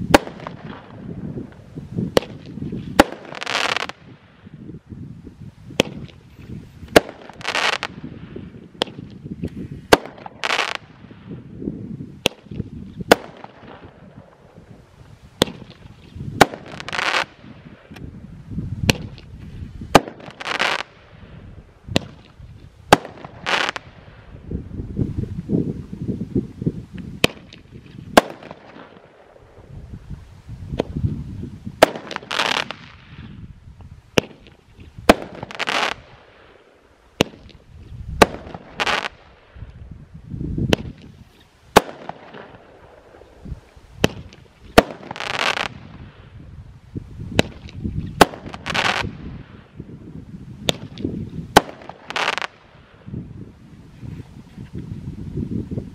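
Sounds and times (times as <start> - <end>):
firework hissing crackle: 0.0 - 4.6, 5.6 - 11.5, 12.2 - 18.0, 18.8 - 24.5, 27.1 - 53.2
fireworks banging: 0.1 - 4.0, 6.9 - 8.1, 15.4 - 18.0, 19.9 - 21.0, 31.8 - 33.3, 34.2 - 36.1, 37.2 - 37.6, 40.7 - 43.3, 44.0 - 46.0, 47.3 - 49.6, 50.6 - 52.7.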